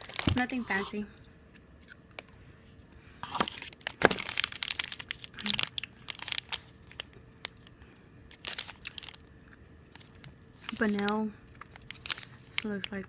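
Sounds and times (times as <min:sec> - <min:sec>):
plastic wrapper crinkling: 0:00.0 - 0:00.8, 0:03.2 - 0:07.7, 0:08.3 - 0:09.3, 0:09.9 - 0:13.0.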